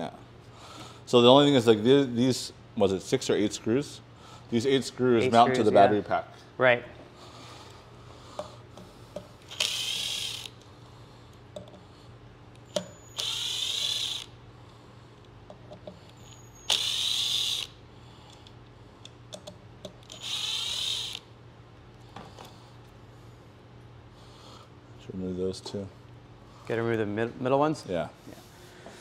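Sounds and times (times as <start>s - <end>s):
power screwdriver running: 9.5s - 10.6s, 13.0s - 14.3s, 16.3s - 17.7s, 20.1s - 21.2s.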